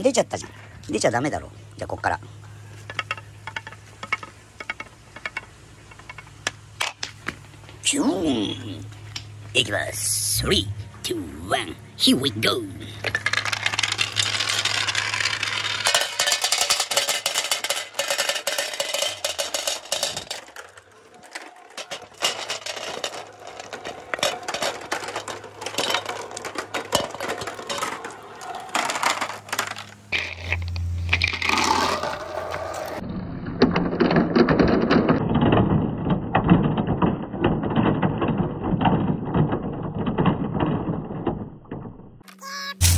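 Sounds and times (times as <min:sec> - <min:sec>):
balls rattling into plastic tub: 0:02.8 - 0:07.4, 0:12.5 - 0:32.7, 0:33.6 - 0:42.0
balls clicking on wooden track: 0:02.8 - 0:07.7, 0:12.4 - 0:42.3.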